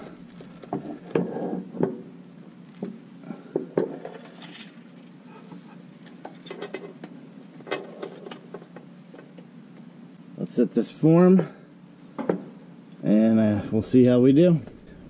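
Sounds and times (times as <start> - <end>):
chain links clinking: 4.0 - 5.2, 6.0 - 7.0, 7.6 - 8.4.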